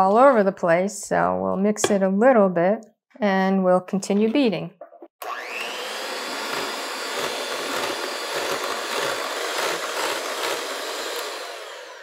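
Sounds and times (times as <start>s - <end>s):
electric hand mixer whipping: 5.2s - 12.0s.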